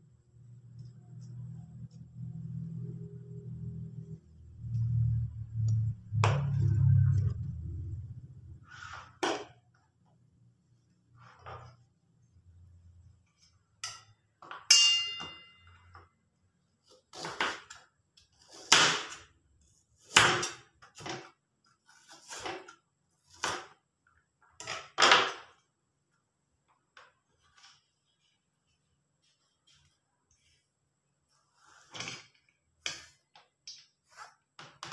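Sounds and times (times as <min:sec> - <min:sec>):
metallic clink: 0:14.7 - 0:15.8.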